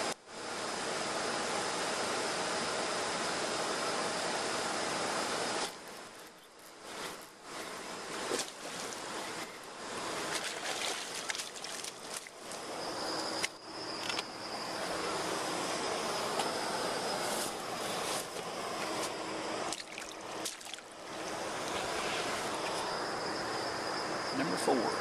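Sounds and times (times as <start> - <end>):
thin high steady buzz: 0.0 - 25.0
fish splashing at water surface: 10.2 - 12.4, 19.7 - 20.9.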